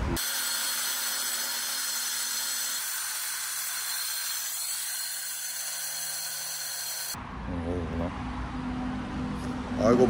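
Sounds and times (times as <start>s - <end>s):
saw blade hissing through stone: 0.2s - 7.2s.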